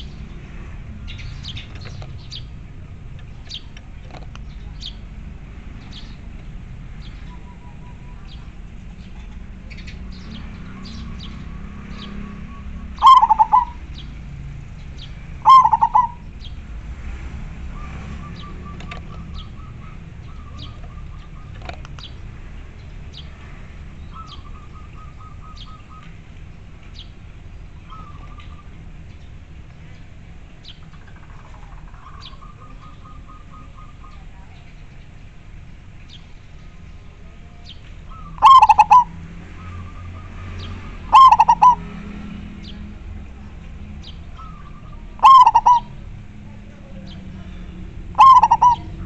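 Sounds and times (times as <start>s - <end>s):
dove cooing: 12.0s - 14.0s, 15.3s - 16.3s, 38.1s - 42.1s, 44.4s - 47.1s, 48.0s - 49.0s
rapid stuttering bird notes: 12.5s - 14.0s, 15.4s - 16.3s, 38.4s - 39.1s, 41.0s - 41.9s, 45.2s - 46.0s, 48.2s - 49.0s.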